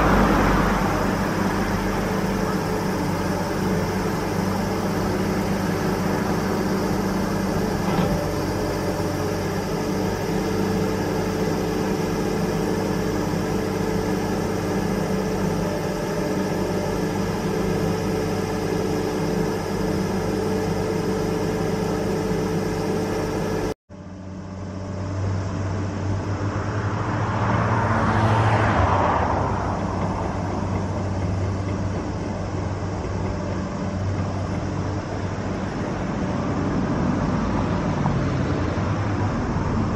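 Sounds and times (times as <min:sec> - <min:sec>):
rushing noise: 0:00.0 - 0:15.7
heavy machinery engine drone: 0:00.0 - 0:39.9.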